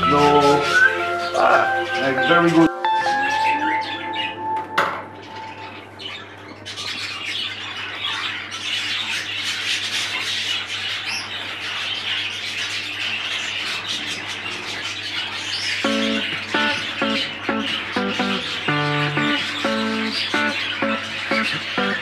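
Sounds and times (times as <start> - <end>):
budgerigars chattering and squawking: 0.0 - 2.7, 5.5 - 22.0.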